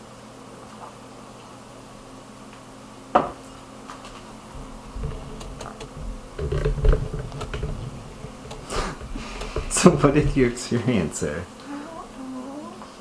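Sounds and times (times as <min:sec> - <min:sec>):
person shifting on sofa: 0:03.9 - 0:10.7.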